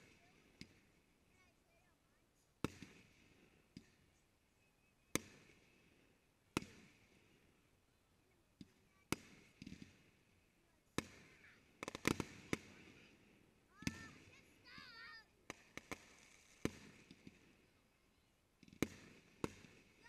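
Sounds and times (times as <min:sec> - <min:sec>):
firework shells bursting: 0:11.0 - 0:17.7.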